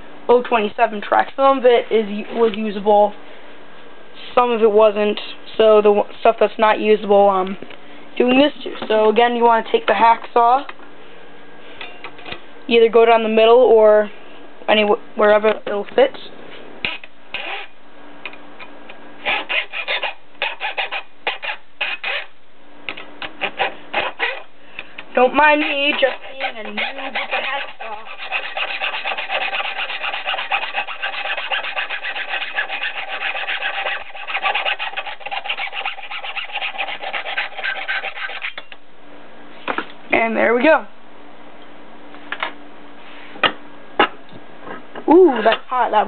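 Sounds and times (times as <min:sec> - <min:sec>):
hacksaw rasping through metal: 0:25.4 - 0:38.6.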